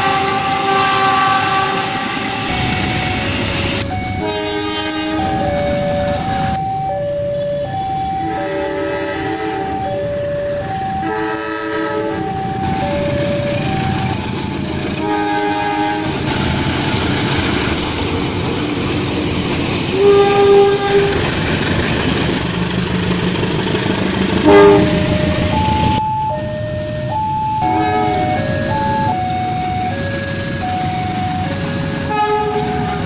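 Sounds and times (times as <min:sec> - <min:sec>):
locomotive horn blasts: 0:00.0 - 0:02.6, 0:03.6 - 0:05.5, 0:08.2 - 0:09.8, 0:11.0 - 0:12.4, 0:15.0 - 0:16.2, 0:20.0 - 0:21.2, 0:24.4 - 0:25.7, 0:27.6 - 0:28.6, 0:32.0 - 0:33.0
train engine and wheels rumbling: 0:00.0 - 0:33.0
alternating electronic warning tones: 0:02.1 - 0:04.3, 0:12.2 - 0:14.6, 0:24.5 - 0:33.0.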